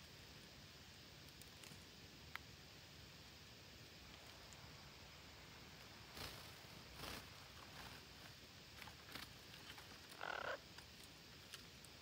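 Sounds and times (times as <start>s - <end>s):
short raspy animal call: 10.2s - 10.6s.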